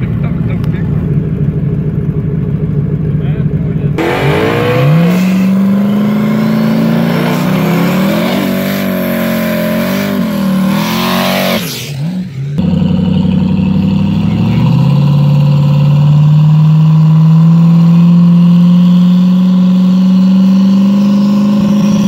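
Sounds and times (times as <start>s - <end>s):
drag car engine revving: 0.0s - 22.0s.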